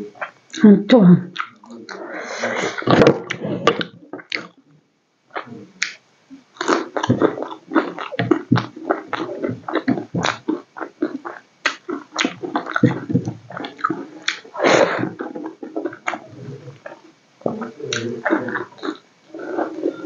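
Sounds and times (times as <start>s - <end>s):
wet chewing and lip-smacking: 1.3s - 2.0s, 6.6s - 20.0s.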